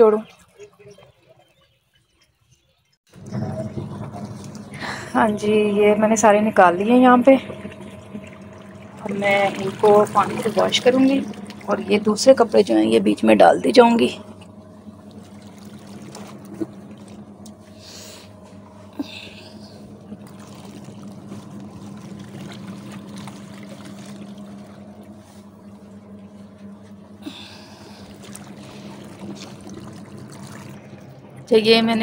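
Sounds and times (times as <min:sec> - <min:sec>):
washing machine motor hum: 0:00.0 - 0:01.6, 0:03.1 - 0:32.0
water splashing: 0:07.2 - 0:17.8, 0:18.7 - 0:32.0.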